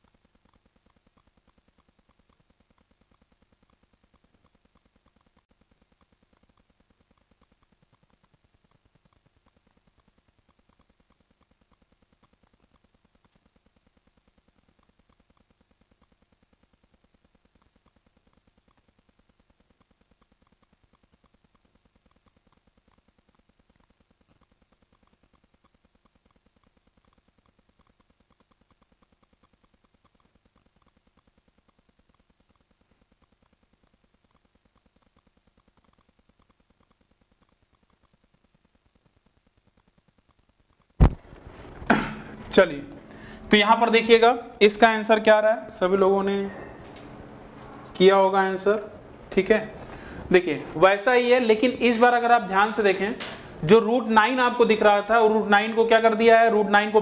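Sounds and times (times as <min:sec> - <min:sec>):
stopwatch ticking: 0:00.0 - 0:41.1.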